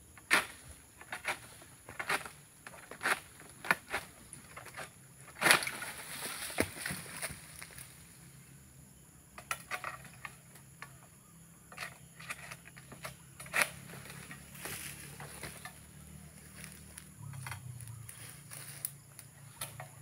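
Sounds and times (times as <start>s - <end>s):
sharp clicks of pruning sickle: 0.2s - 7.8s, 11.7s - 20.0s
scraping rustles of fronds: 0.2s - 8.4s, 11.7s - 20.0s.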